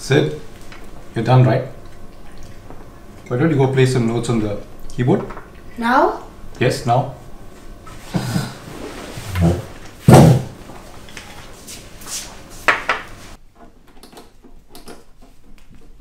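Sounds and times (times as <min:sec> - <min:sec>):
chair knocking and scraping: 0:07.9 - 0:11.6.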